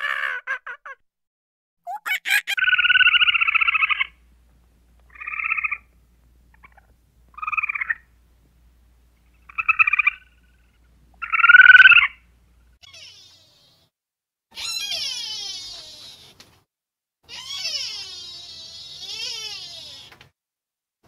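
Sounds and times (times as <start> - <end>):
animal buzzy trilling calls: 1.9 - 4.2, 5.1 - 5.9, 9.3 - 12.2, 12.8 - 13.9, 14.6 - 16.4, 17.3 - 20.1.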